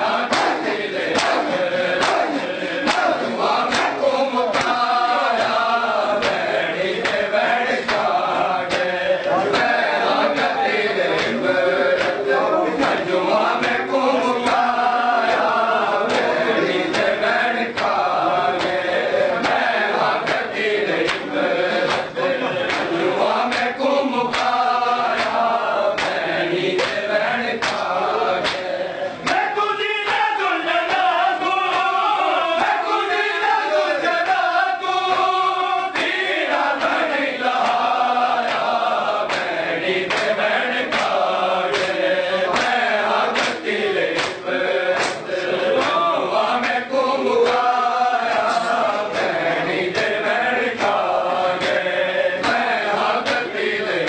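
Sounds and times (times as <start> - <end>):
men chanting in unison: 0.0 - 54.0
hands slapping chests: 0.2 - 9.8, 11.1 - 12.2, 18.6 - 18.8, 19.4 - 26.2, 26.8 - 29.4, 37.6 - 46.0, 51.6 - 51.8, 52.4 - 54.0.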